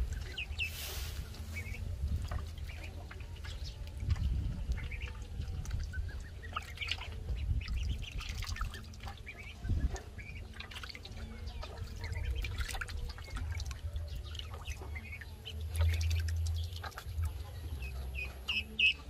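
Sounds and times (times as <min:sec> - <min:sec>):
steady low rumble: 0:00.0 - 0:10.7
small water splashes: 0:01.6 - 0:17.7
duckling calls: 0:18.0 - 0:19.0.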